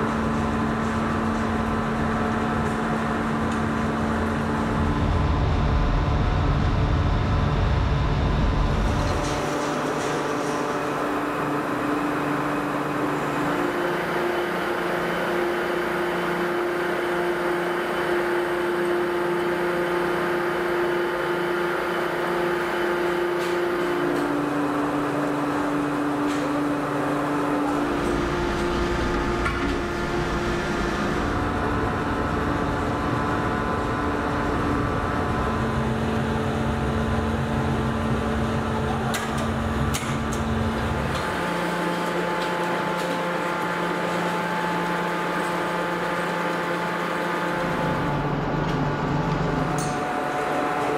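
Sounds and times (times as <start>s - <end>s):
hydraulic machine hum: 0.0s - 50.9s
deep rumble: 4.4s - 9.5s.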